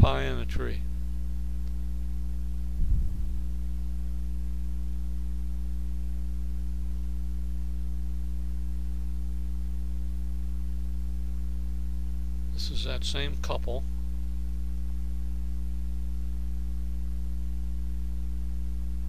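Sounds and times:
electrical mains hum: 0:00.0 - 0:19.0.

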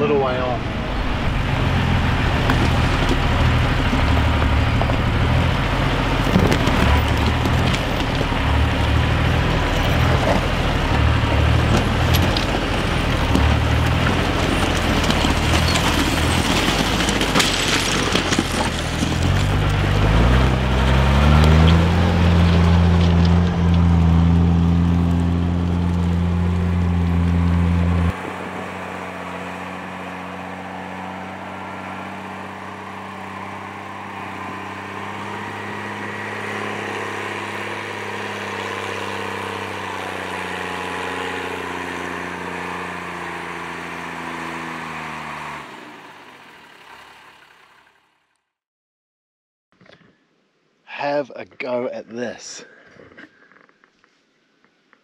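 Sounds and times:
diesel truck engine: 0:00.0 - 0:48.3
stones crunching under tyres: 0:01.0 - 0:28.3, 0:29.2 - 0:45.7.

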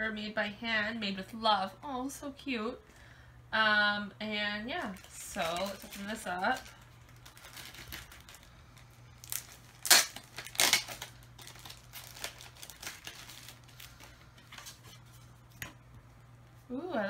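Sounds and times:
packaging crinkling and tearing: 0:04.8 - 0:15.0.

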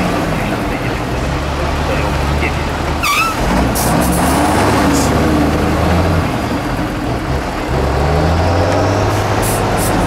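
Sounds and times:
diesel truck engine running: 0:00.0 - 0:10.0.

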